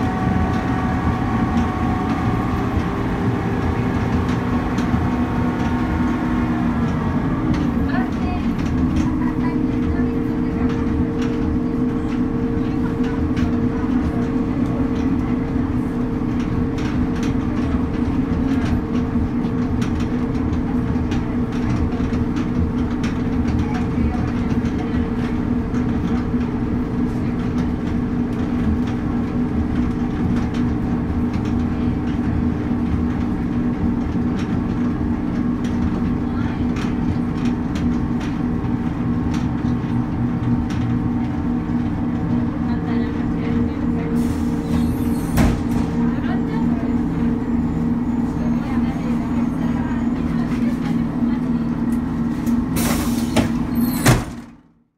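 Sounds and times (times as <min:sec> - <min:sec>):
wheels clicking over track: 0:00.0 - 0:54.6
diesel engine drone: 0:00.0 - 0:54.9.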